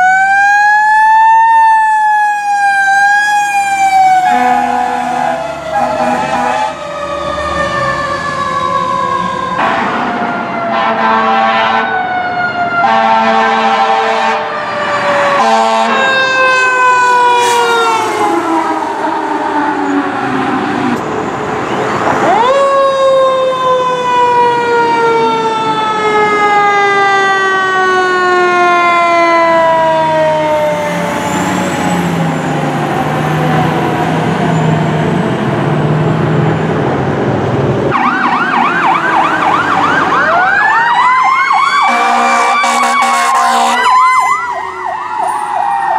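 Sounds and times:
electronic yelp siren: 0.0 - 35.4, 37.9 - 45.9
fire truck siren: 0.0 - 45.9
air horn blasts: 4.2 - 6.8, 9.6 - 12.0, 12.8 - 14.5, 15.4 - 16.1, 41.8 - 44.0.

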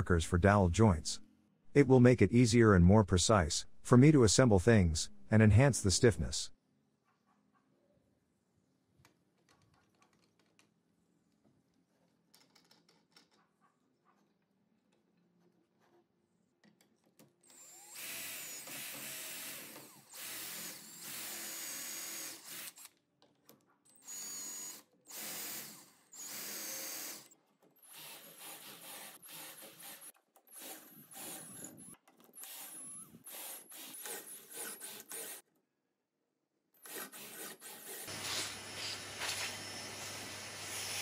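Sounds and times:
cordless drill boring wood: 17.5 - 22.9, 24.0 - 35.4, 36.8 - 41.0.

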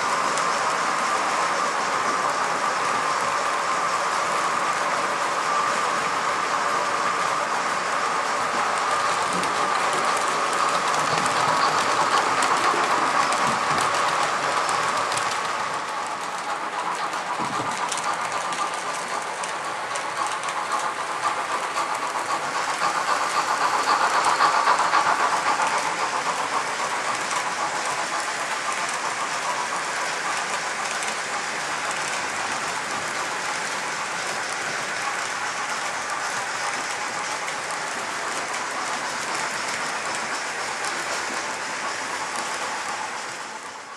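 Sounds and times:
model train wheels rattling on rails: 0.0 - 43.9
clicking over rail joints: 7.0 - 43.8.

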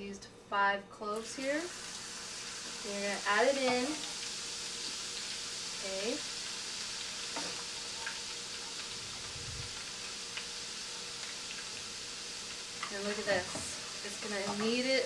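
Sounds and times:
garlic sizzling in oil: 1.2 - 15.0.

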